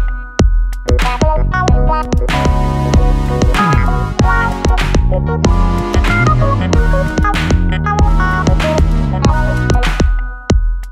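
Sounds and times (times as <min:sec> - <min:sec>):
music with steady beat and synth: 0:00.0 - 0:10.9
falling bass sweep: 0:02.4 - 0:09.9.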